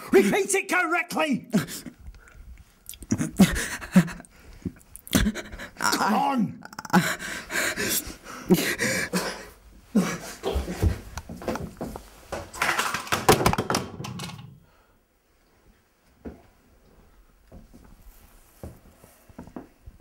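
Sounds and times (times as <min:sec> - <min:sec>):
boy crying and sobbing: 0:03.1 - 0:04.3, 0:05.0 - 0:10.9
heavy breathing: 0:03.2 - 0:05.8, 0:06.9 - 0:11.0.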